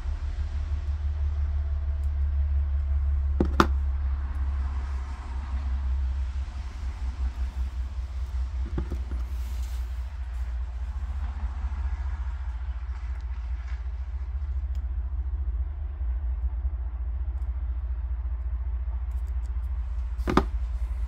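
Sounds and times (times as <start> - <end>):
low rumble: 0.0 - 21.0
sharp knock: 20.3 - 20.5.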